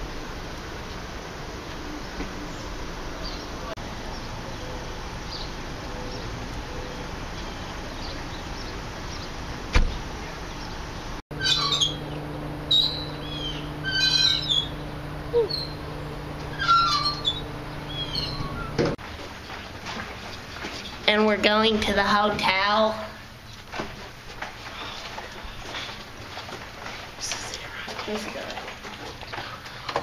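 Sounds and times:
steady low hum: 0.0s - 30.0s
small birds chirping: 1.9s - 19.6s.

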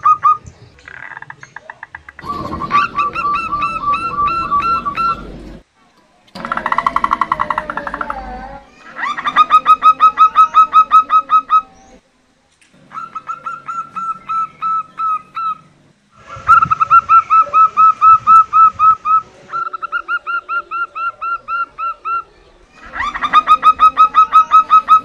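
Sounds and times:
dove calling short notes: 2.1s - 5.6s, 12.8s - 25.0s.

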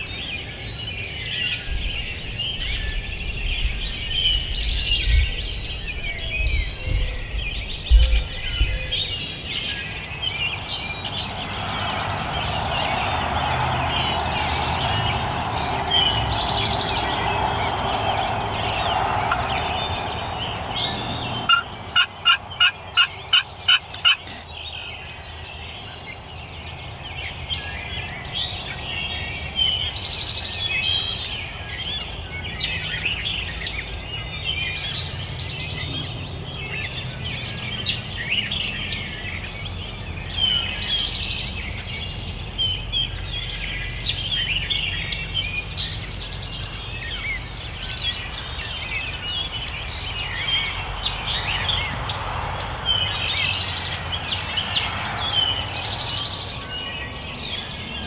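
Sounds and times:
songbirds singing: 0.0s - 58.0s
turkey call yelps: 21.5s - 24.3s.

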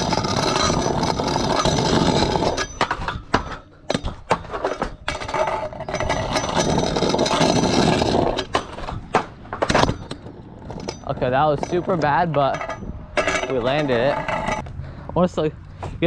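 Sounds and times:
wooden wheels rolling on concrete: 0.0s - 14.7s.

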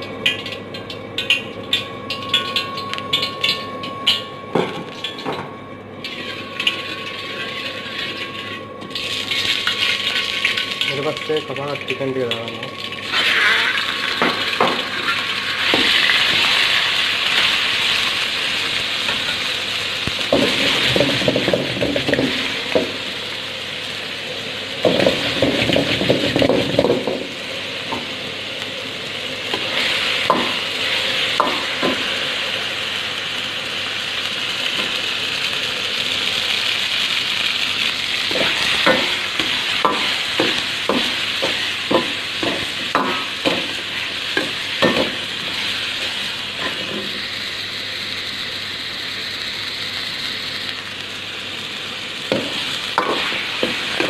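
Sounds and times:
metal ladle scraping wok: 6.1s - 8.6s
chicken sizzling in oil: 6.1s - 54.0s.

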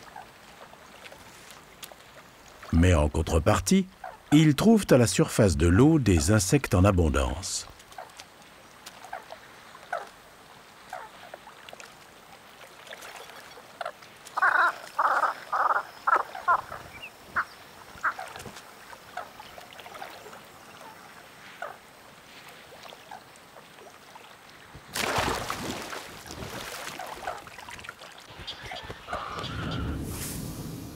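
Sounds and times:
animal calls: 13.8s - 18.4s.

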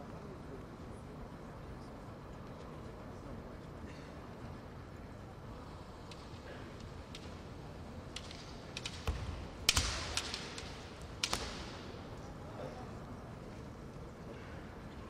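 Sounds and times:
bamboo swords clacking: 6.8s - 12.3s.

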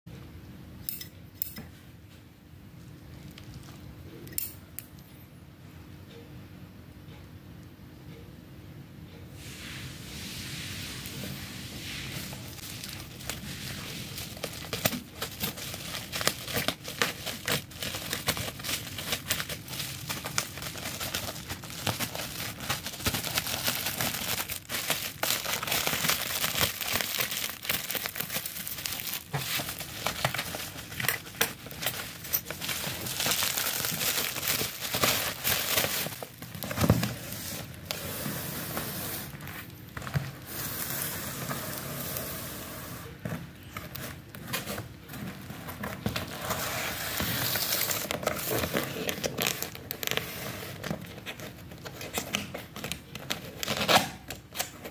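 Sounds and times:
bubble wrap crinkling: 10.8s - 38.0s, 43.9s - 54.9s.

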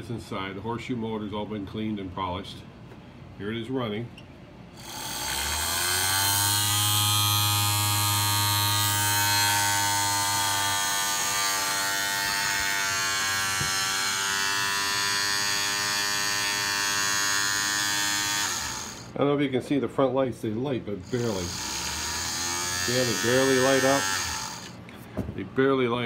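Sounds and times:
toy electric motor buzzing whir: 4.8s - 19.1s, 21.0s - 24.8s.

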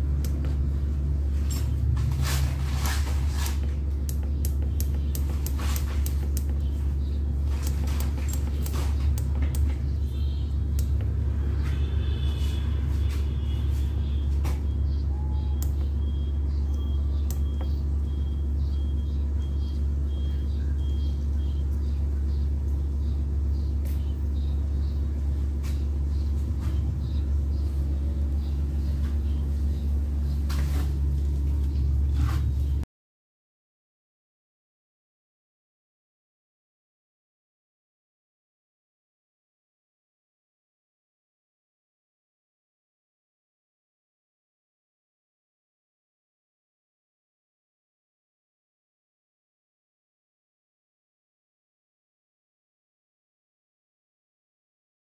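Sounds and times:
generator rumbling: 0.0s - 32.8s.

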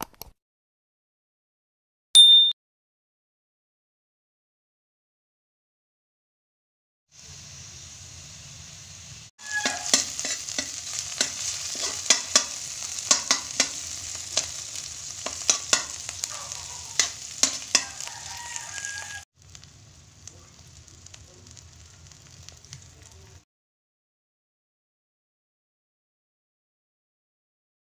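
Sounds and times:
vegetables sizzling in hot oil: 7.1s - 23.4s
spatula scraping wok: 7.2s - 19.7s
egg frying softly: 7.2s - 23.4s.

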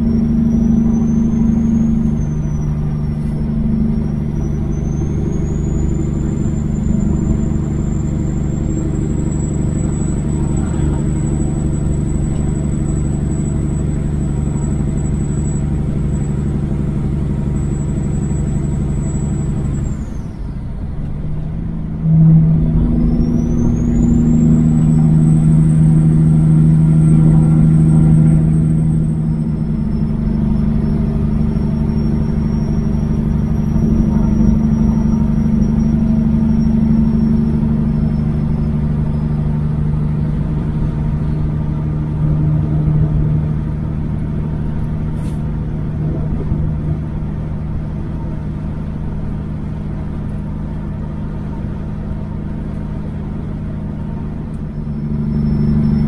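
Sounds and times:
road noise: 0.0s - 56.0s
truck diesel engine running: 0.0s - 56.0s
thin high whine: 22.0s - 40.4s.

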